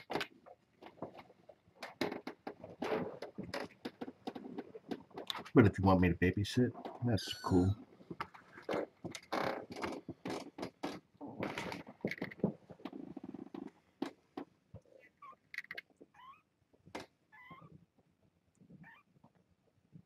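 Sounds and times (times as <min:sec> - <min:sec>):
kittens mewing: 0:07.2 - 0:07.8.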